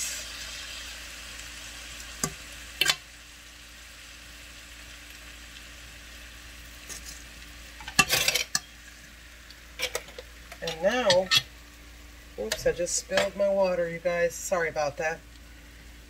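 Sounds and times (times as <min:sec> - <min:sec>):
rice sizzling in pot: 0:00.0 - 0:16.0.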